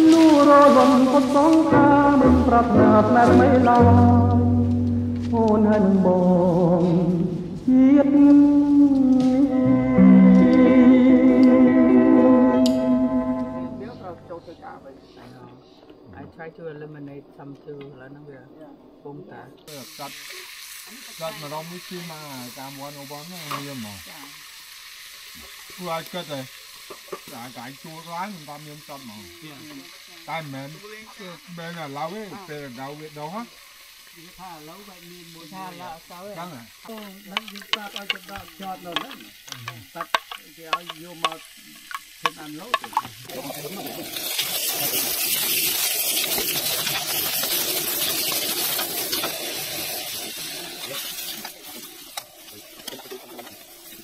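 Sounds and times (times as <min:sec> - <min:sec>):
food frying hiss: 0:00.0 - 0:54.0
people talking: 0:12.6 - 0:24.4, 0:27.2 - 0:33.5, 0:34.2 - 0:45.1, 0:50.8 - 0:54.0.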